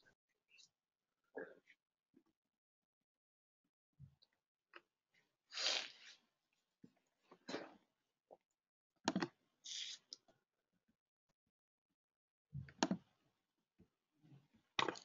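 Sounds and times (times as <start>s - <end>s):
short hiss: 5.5s - 6.1s
computer mouse clicks: 9.1s - 9.4s, 12.7s - 13.0s.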